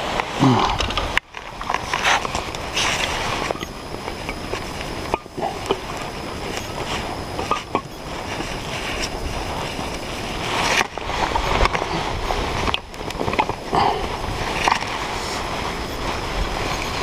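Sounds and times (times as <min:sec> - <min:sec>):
wind rumbling on microphone: 0:00.0 - 0:17.0
clothing rubbing on microphone: 0:01.5 - 0:17.0.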